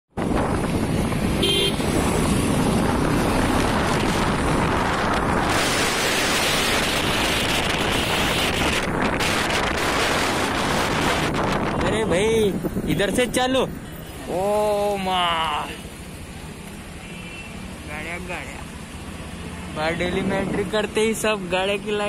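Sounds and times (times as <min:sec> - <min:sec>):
wind rushing over microphone: 0:00.1 - 0:13.8
road traffic: 0:00.1 - 0:22.0
vehicle horn beep: 0:01.4 - 0:01.8.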